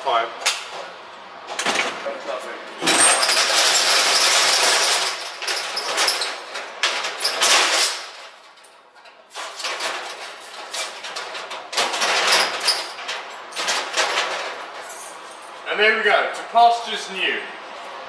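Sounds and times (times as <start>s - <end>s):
metal roller shutter rattling: 2.8s - 15.7s.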